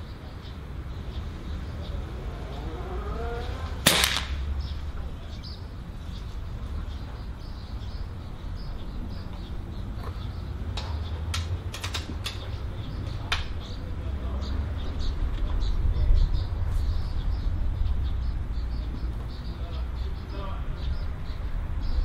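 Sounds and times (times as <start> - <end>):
air rifle shot: 3.8 - 4.5.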